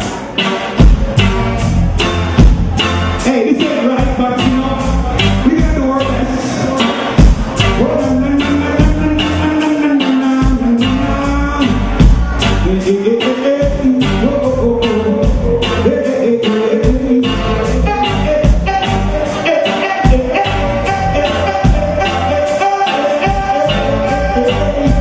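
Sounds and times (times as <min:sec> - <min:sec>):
reggae band playing: 0:00.0 - 0:25.0
person singing: 0:03.2 - 0:25.0
tenor saxophone: 0:15.6 - 0:25.0.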